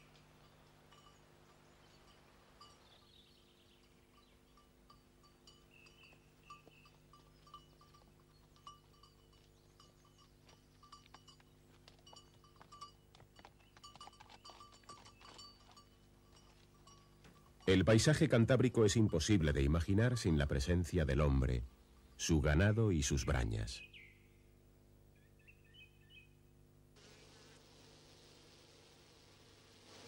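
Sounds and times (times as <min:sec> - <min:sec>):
light metallic clinks: 0:00.1 - 0:17.8
small bells tinkling: 0:00.4 - 0:19.8.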